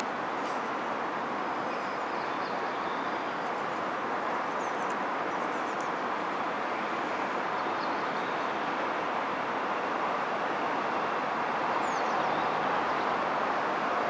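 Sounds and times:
rushing outdoor background noise: 0.0 - 14.0.

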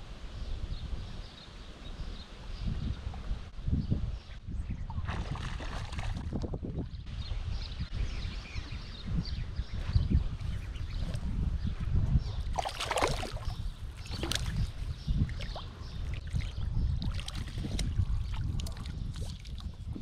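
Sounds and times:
fish thrashing at the surface: 12.6 - 14.6
water splashing: 12.6 - 19.7.

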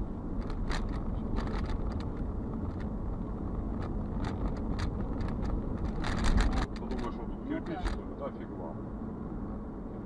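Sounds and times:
car engine and tyre rumble: 0.0 - 10.0
light ticks and rattles: 0.4 - 8.1.

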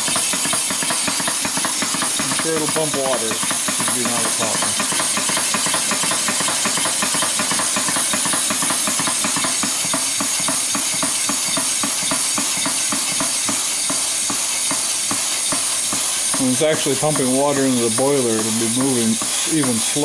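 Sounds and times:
air exhaust hissing: 0.0 - 20.0
pump banging: 0.0 - 20.0
pump pistons clattering: 0.0 - 20.0.

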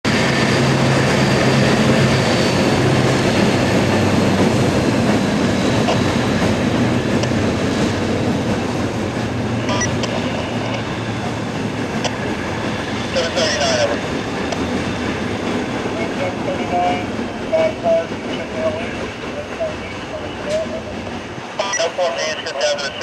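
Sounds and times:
diesel locomotive engine droning: 0.0 - 23.0.

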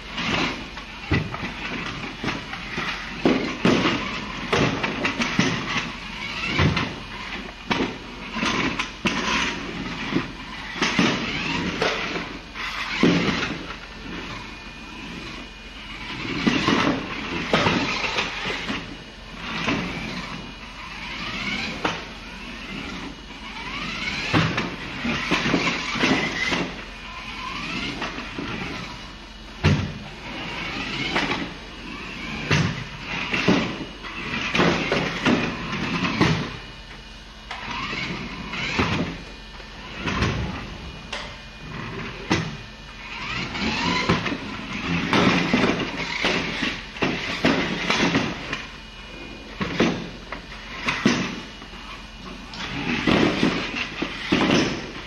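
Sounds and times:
toy car motor whining: 0.0 - 55.0
toy car knocks and clatters: 0.2 - 14.3, 16.2 - 23.0, 23.6 - 29.0, 42.3 - 48.7.

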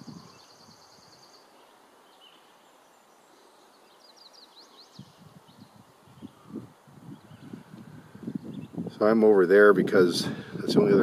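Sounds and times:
songbird trilling and chirping: 0.0 - 9.1.

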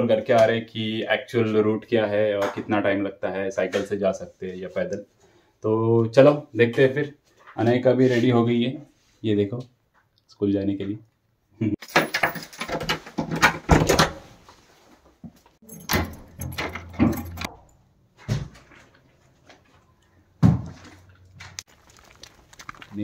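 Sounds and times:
keys jangling: 15.6 - 17.8.

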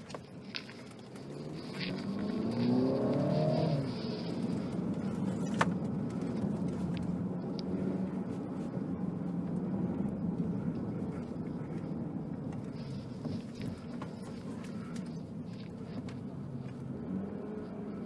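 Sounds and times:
car engine and road hum: 0.0 - 18.0.

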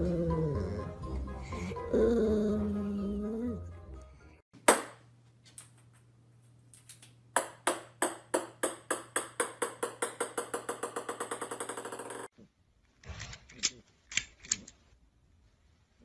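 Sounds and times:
small ball bouncing on wooden floor: 6.8 - 12.3.

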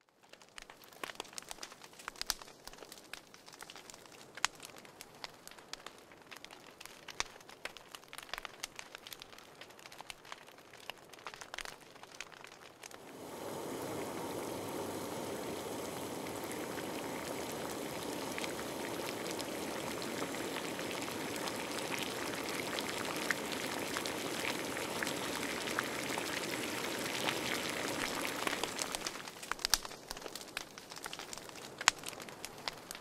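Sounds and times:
crackles: 0.0 - 33.0
rain-like rushing noise: 12.8 - 33.0.

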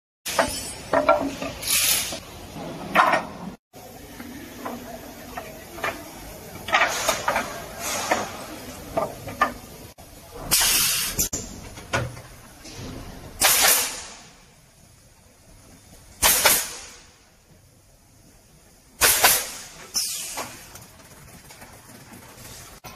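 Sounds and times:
pneumatic exhaust hissing: 6.7 - 8.8, 10.4 - 11.4, 19.0 - 20.7.

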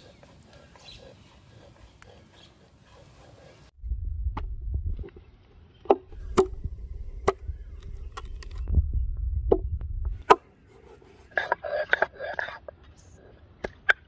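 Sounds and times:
low rumble: 3.7 - 5.3, 6.1 - 10.2.

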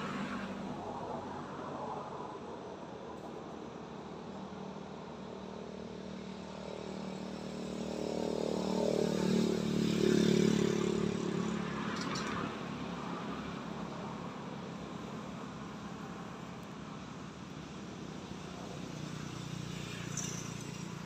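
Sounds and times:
vehicle engine passing by: 6.2 - 16.0, 18.4 - 21.0.

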